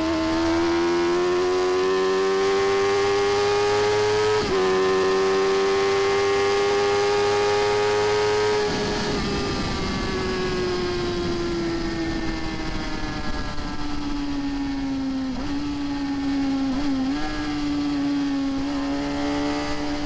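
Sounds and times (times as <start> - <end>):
motorcycle engine at full throttle: 0.0 - 20.0
wind rush: 8.0 - 20.0.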